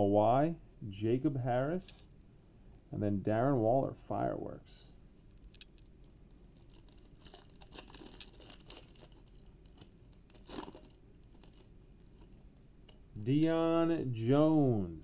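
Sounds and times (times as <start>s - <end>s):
foil wrapper crinkling and tearing: 6.5s - 12.3s.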